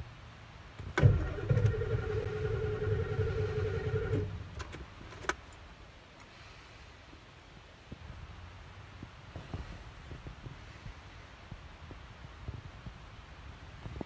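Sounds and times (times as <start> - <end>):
diesel engine cranking: 0.8 - 4.8.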